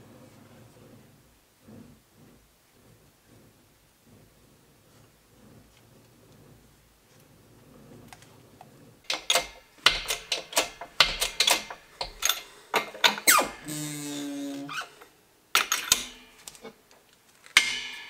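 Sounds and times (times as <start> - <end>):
sharp metallic clicks and knocks: 9.1 - 13.7, 15.6 - 16.8, 17.4 - 18.0.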